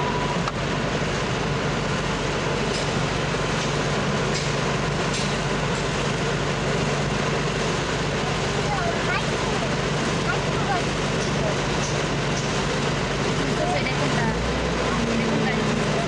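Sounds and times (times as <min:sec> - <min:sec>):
vehicle engine and road noise: 0:00.0 - 0:16.0.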